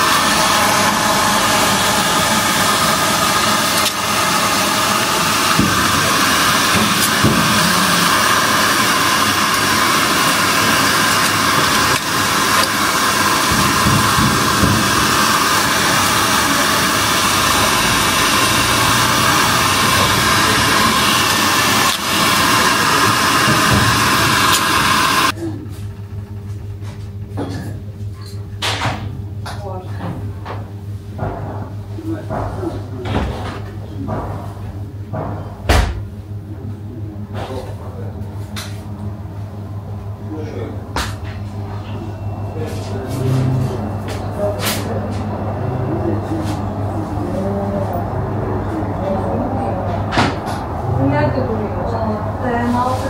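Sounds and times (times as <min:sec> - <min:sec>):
hair dryer running: 0:00.0 - 0:25.4, 0:41.0 - 0:53.0.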